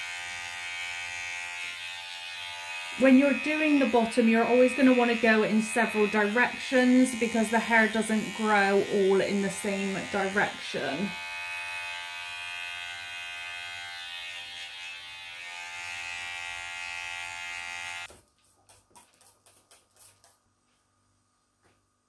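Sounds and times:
electric hair clippers buzzing: 0.0 - 18.1.

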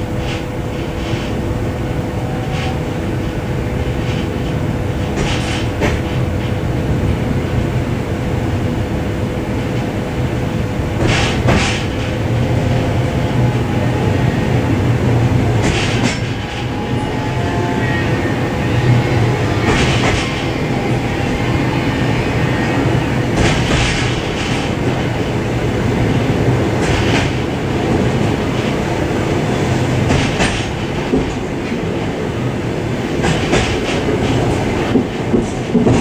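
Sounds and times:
train rumble and hum: 0.0 - 36.0
wheels clacking over rail joints: 11.0 - 12.4, 15.5 - 16.8, 19.4 - 21.4, 23.2 - 32.2, 33.2 - 36.0.

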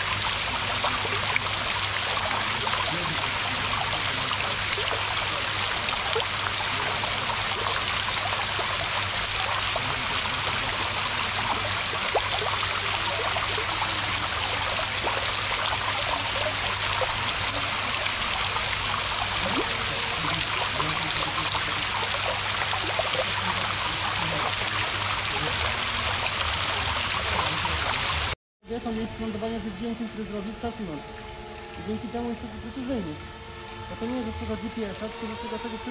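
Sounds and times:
water splashing into pool: 0.0 - 28.4.

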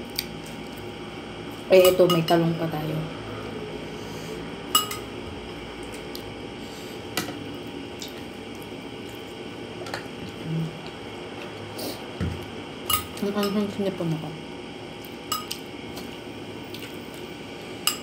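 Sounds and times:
metal spoon clinking on plate: 4.8 - 5.0.

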